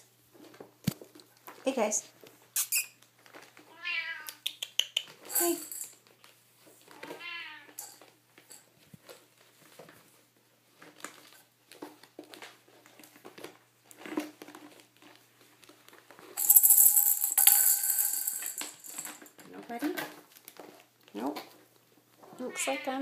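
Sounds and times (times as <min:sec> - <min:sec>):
rattle toy ball jangling: 0:05.3 - 0:06.0, 0:16.4 - 0:19.3
ball rolling across tiles: 0:16.1 - 0:20.8.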